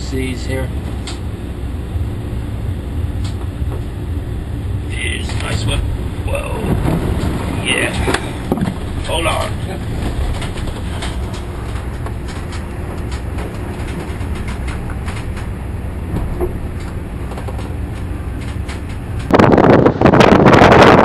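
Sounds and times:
low rumble aboard a ship: 0.0s - 21.0s
wind buffeting microphone: 0.6s - 21.0s
faint rattles: 4.9s - 20.0s.

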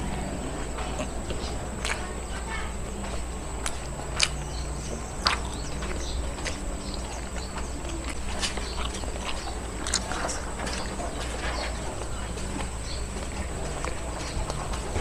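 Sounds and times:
chewing: 0.0s - 15.0s
lip-smacking clicks: 3.6s - 11.2s.

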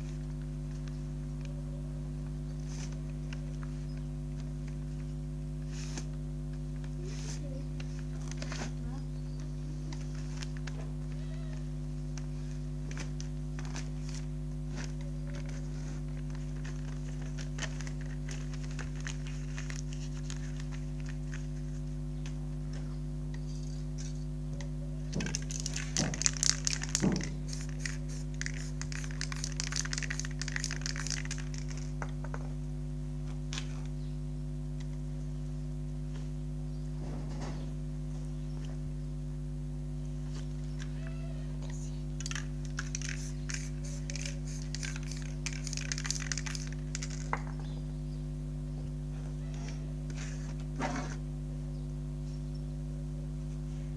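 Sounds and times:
paper crinkling: 6.8s - 9.0s, 9.8s - 11.2s, 12.1s - 22.1s, 25.1s - 32.4s, 42.2s - 47.5s
spray paint can hissing: 25.3s - 32.0s, 42.2s - 47.4s.

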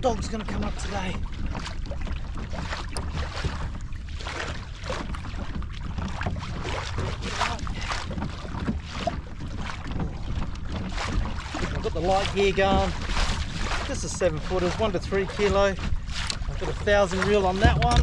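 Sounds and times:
water splashing against kayak hull: 0.0s - 18.0s
wind rumble on microphone: 0.0s - 18.0s.

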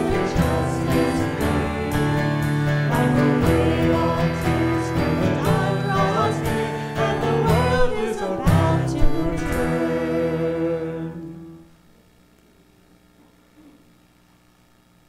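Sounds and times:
guitar-led accompaniment with beat: 0.0s - 10.1s
voices singing a hymn: 0.0s - 11.6s.

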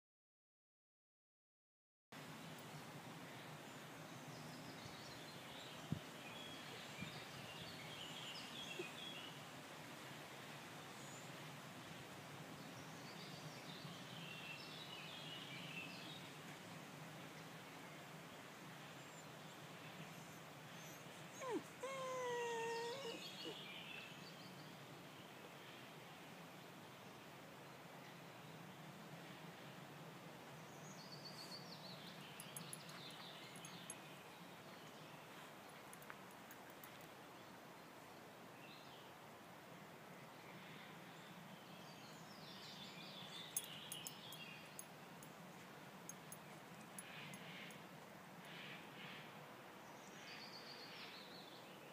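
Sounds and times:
dog whining: 20.8s - 23.6s.

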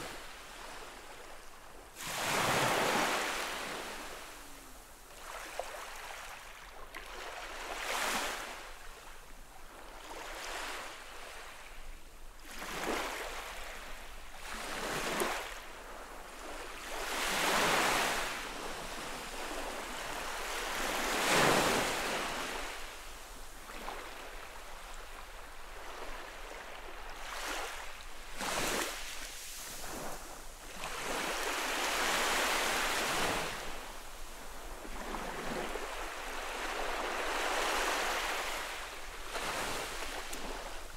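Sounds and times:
small waves lapping on sandy shore: 0.0s - 40.9s.

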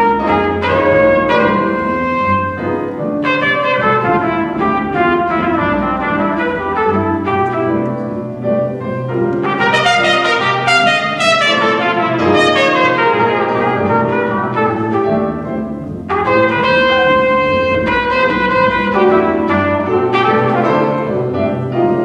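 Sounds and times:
double bass: 0.0s - 22.0s
piano: 0.0s - 22.0s
trumpet melody: 0.0s - 22.0s.

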